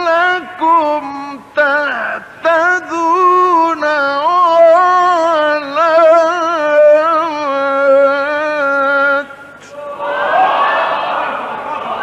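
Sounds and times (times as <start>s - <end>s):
man chanting: 0.0s - 9.5s.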